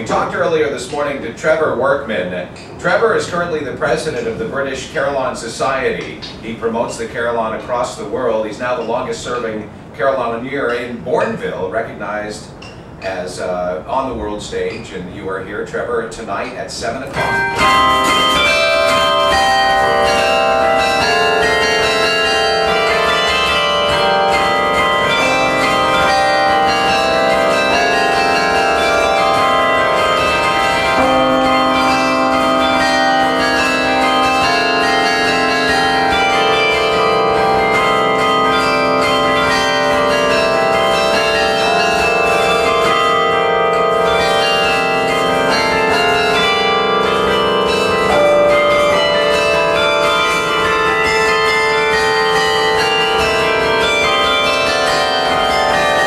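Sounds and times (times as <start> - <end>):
carillon bells playing melody: 17.0 - 56.0.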